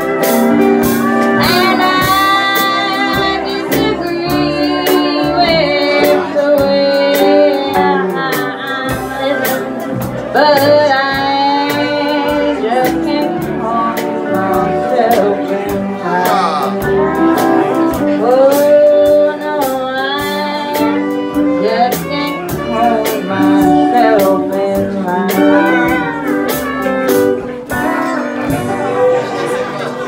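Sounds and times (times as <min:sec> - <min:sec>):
country band playing live: 0:00.0 - 0:30.0
drum kit beat: 0:00.0 - 0:30.0
fiddle: 0:00.0 - 0:30.0
woman singing: 0:01.3 - 0:26.5.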